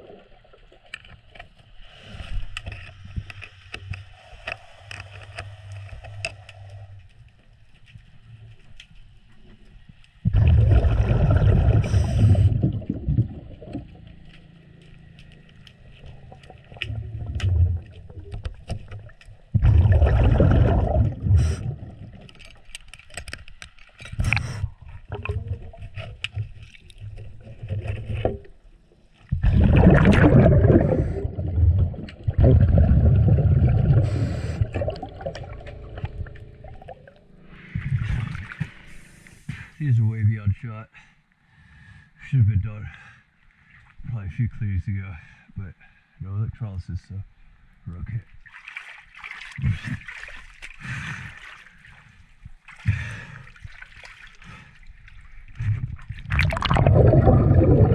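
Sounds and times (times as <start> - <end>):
exhaled bubbles underwater: 10.2 - 14.1, 16.1 - 22.6, 24.2 - 28.5, 29.3 - 38.9, 55.4 - 57.9.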